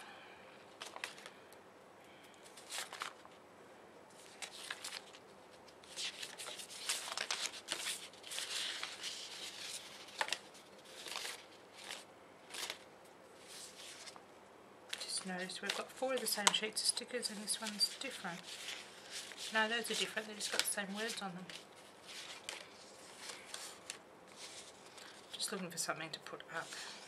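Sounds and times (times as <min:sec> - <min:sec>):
sticker sheets rustling: 0:00.7 - 0:01.4, 0:02.4 - 0:03.4, 0:04.1 - 0:12.8, 0:13.4 - 0:14.2, 0:14.9 - 0:25.7.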